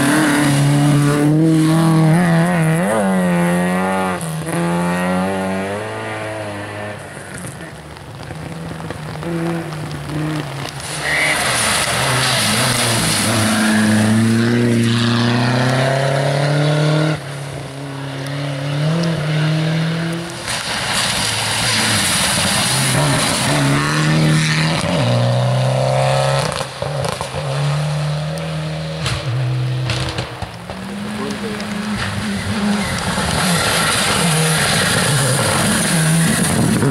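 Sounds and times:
rally car engine revving: 0:00.0 - 0:36.9
rain hiss: 0:07.0 - 0:14.4, 0:20.2 - 0:23.7.

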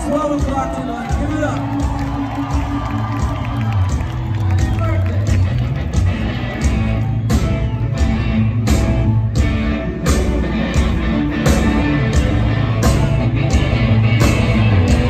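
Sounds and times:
drum beat: 0:00.0 - 0:15.0
rock band playing live: 0:00.0 - 0:15.0.

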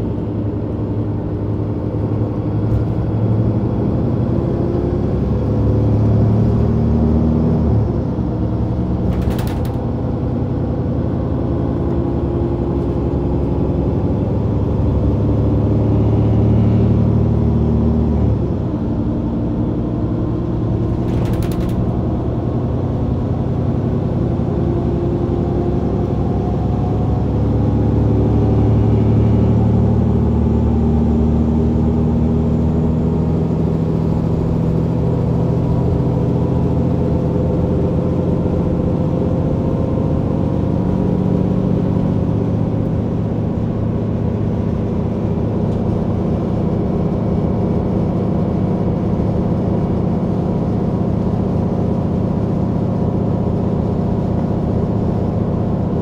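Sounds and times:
bus diesel engine running: 0:00.0 - 0:56.0
short clatter: 0:09.0 - 0:09.8, 0:20.8 - 0:22.0.

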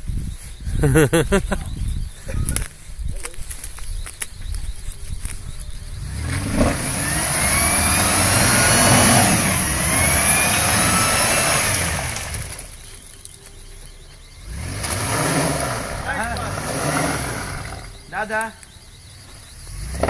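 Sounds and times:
engine revving hard: 0:06.0 - 0:12.7, 0:14.4 - 0:18.0, 0:19.7 - 0:20.0.

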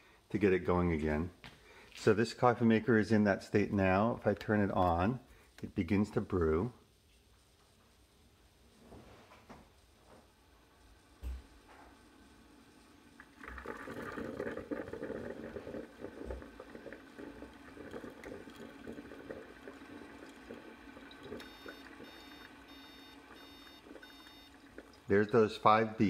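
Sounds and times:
coffee maker gurgling and hissing: 0:10.3 - 0:26.0
short high beeps: 0:21.4 - 0:24.6.

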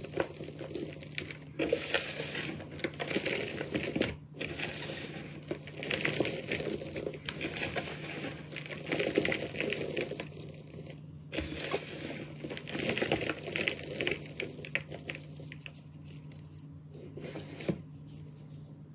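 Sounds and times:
hands crushing chalk powder: 0:00.0 - 0:16.6.

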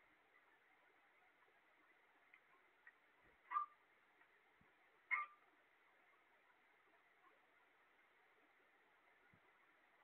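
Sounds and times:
faint ticks: 0:01.3 - 0:07.4.

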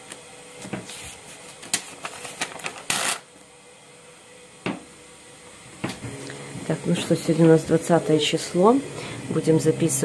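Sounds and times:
paper rustling and clicks: 0:00.7 - 0:03.2
paper ripping: 0:00.9 - 0:03.3.

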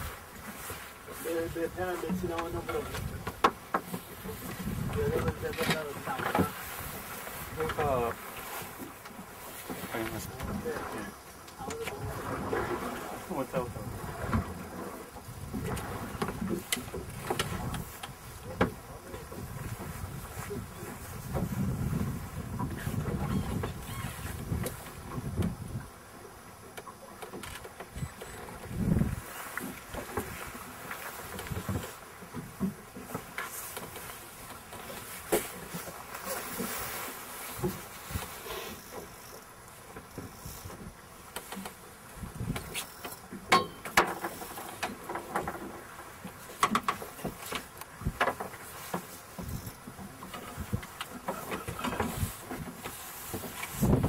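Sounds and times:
boat motor rumble: 0:00.0 - 0:54.0
wind: 0:00.0 - 0:54.0
sharp clicks and knocks: 0:46.6 - 0:49.6.

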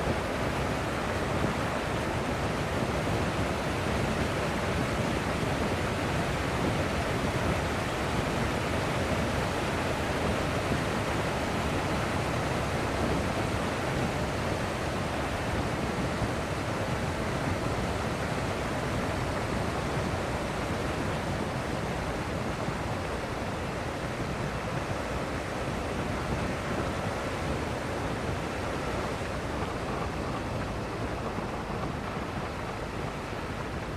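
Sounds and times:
wind over microphone: 0:00.0 - 0:33.9.

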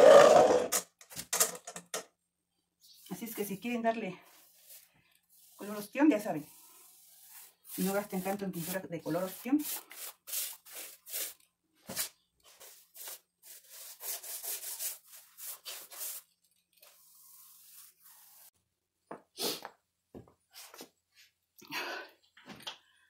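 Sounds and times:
paintbrush scrubbing on rough wall: 0:03.3 - 0:18.6.

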